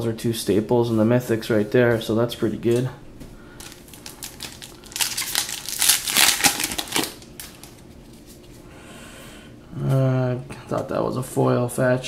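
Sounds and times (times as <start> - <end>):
foil wrapper tearing and crinkling: 3.6 - 7.8.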